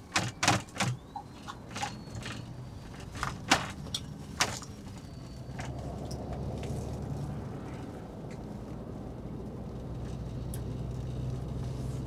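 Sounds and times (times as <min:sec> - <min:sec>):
clicks and knocks in cabin: 0:00.0 - 0:04.9
bus engine hum: 0:00.0 - 0:12.0.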